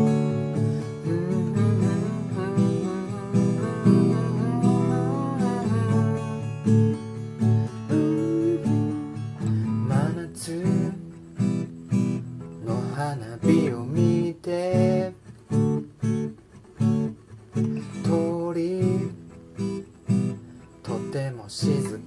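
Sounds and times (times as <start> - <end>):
acoustic guitar strummed: 0.0 - 22.0
man singing: 0.7 - 6.9, 7.7 - 11.4, 12.6 - 15.3, 17.8 - 19.2, 20.8 - 22.0.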